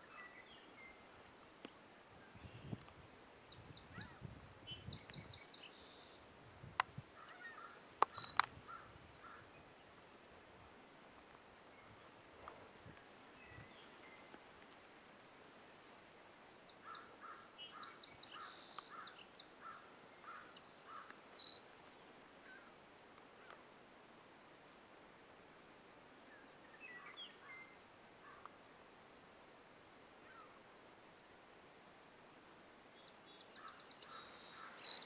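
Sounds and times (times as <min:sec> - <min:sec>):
open field ambience: 0:00.0 - 0:35.0
short lower bird calls: 0:16.8 - 0:21.6, 0:33.1 - 0:35.0.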